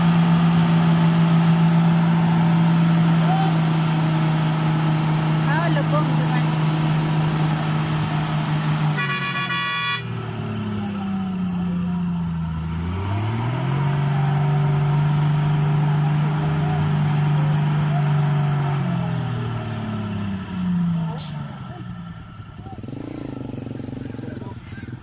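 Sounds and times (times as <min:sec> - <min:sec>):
truck engine revving: 0:00.0 - 0:25.0
truck horn: 0:08.8 - 0:10.4.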